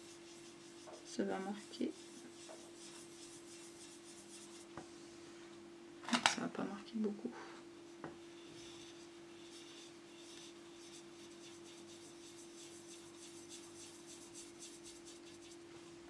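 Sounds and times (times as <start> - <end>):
faint steady hum: 0.0 - 16.0
marker scratching and ticking: 8.8 - 15.6.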